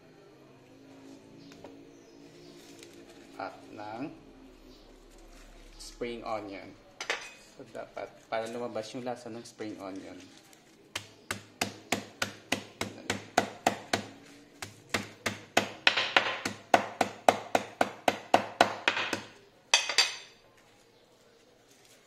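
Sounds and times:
knife chopping on wooden board: 10.9s - 19.4s.

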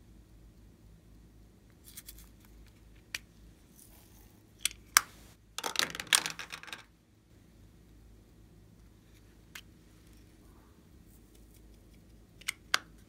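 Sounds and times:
plastic pieces clicking and rattling: 5.6s - 6.9s.

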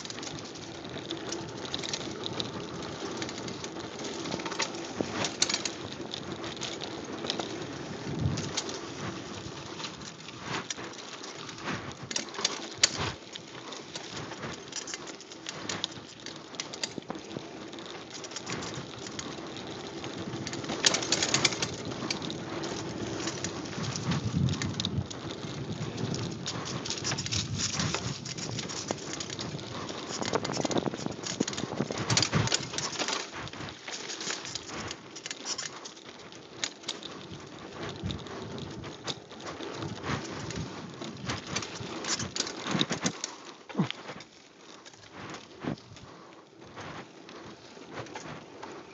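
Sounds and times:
bike rattling over bumps: 0.0s - 48.9s
bike tyres crunching over dirt: 0.0s - 48.9s.

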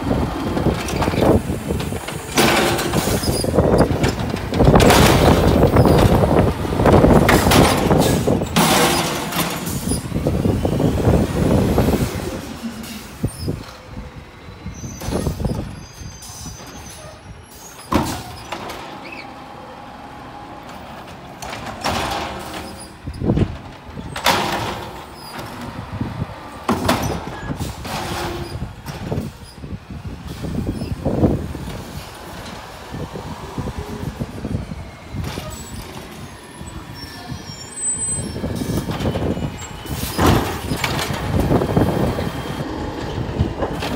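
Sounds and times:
garbage truck running: 0.0s - 43.9s
clanks and bangs of arm and carts: 0.4s - 10.6s, 17.8s - 19.2s, 20.6s - 29.8s, 38.2s - 43.9s
truck arm tipping cart banging: 0.4s - 10.8s, 20.6s - 29.8s, 38.0s - 43.9s.

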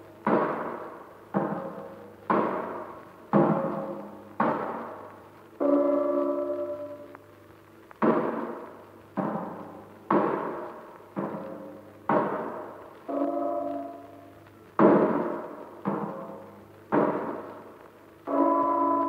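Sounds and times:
heavy percussion strikes: 0.2s - 7.1s
ringing metallic tone: 5.6s - 7.1s, 18.3s - 19.0s.

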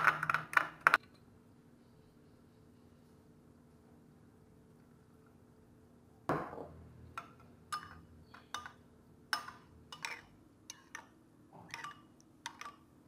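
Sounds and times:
metal spoon clinking on ceramic bowl: 7.2s - 12.9s.

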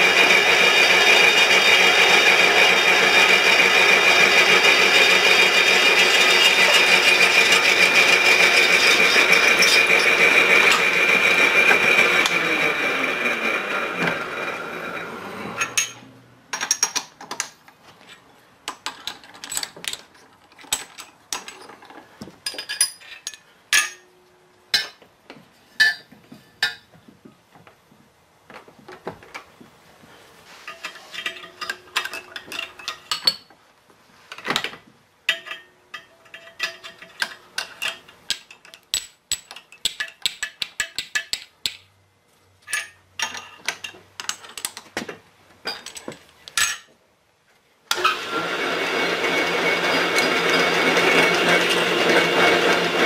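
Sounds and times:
metallic clicks of tools: 35.3s - 41.9s.

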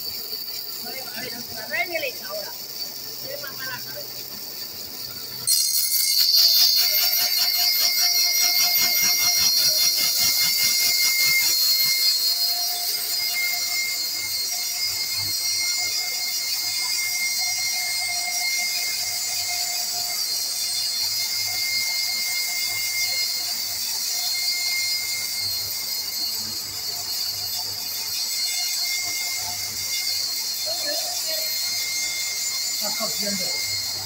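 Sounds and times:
band saw cutting plank: 4.9s - 20.8s.

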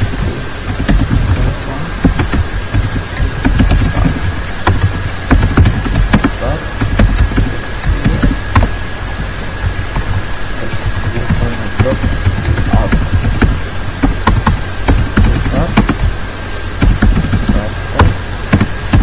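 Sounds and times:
thin high whine: 0.0s - 19.0s.

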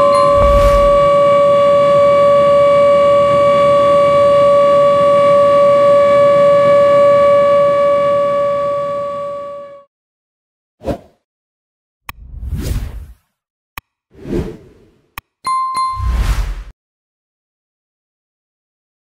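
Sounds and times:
ship's horn blast: 0.0s - 9.9s.

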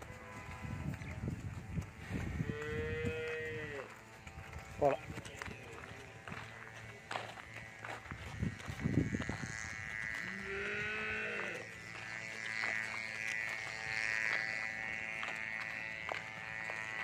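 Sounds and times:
high-pitched buzzing drone: 0.0s - 17.0s
cow mooing: 2.4s - 4.0s, 7.4s - 17.0s.

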